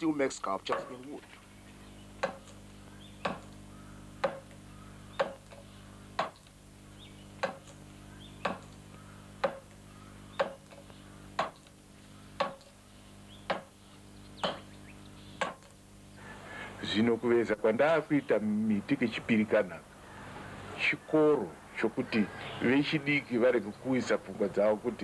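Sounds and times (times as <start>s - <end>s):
carving tool knocking into wood: 4.2s - 4.5s, 7.4s - 7.6s, 9.4s - 9.7s, 12.4s - 12.6s.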